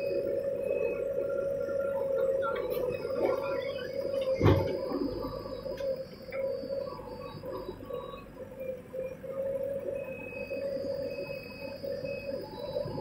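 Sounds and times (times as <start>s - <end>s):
diesel engine droning: 0.0s - 13.0s
thin high whine: 0.0s - 13.0s
heavy thump of earth dropping: 4.4s - 4.8s.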